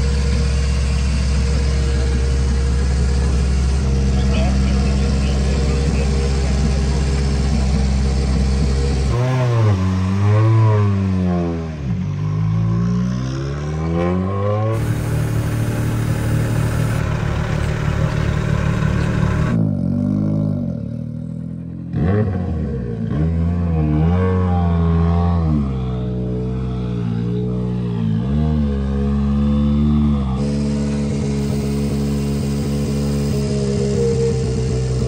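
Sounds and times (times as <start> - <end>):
car engine idling: 0.0 - 9.1, 14.7 - 19.6, 30.2 - 35.0
engine throttle blips: 0.0 - 9.2, 14.6 - 19.6, 30.3 - 35.0.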